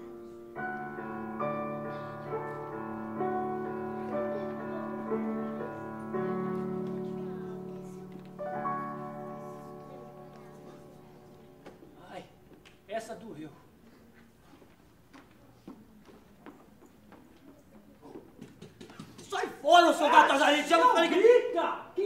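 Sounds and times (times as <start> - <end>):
slow soft piano chords: 0.0 - 12.9.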